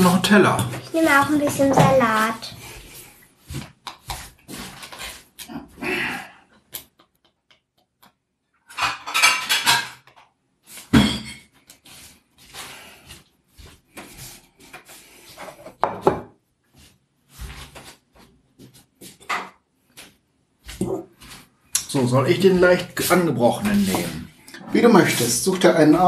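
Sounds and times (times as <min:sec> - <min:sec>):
plates and cutlery clattering: 0:08.7 - 0:10.2, 0:10.8 - 0:11.6.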